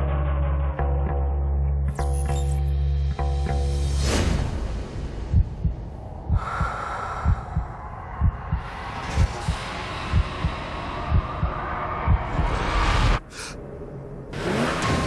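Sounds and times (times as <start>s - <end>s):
heartbeat thumps: 5.2s - 13.2s.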